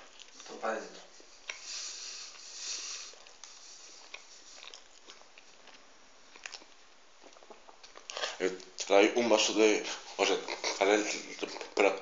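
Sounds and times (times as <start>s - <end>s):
breath hiss: 1.0s - 4.6s
wet mouth clicks: 1.4s - 8.2s
chewing food: 1.4s - 8.9s.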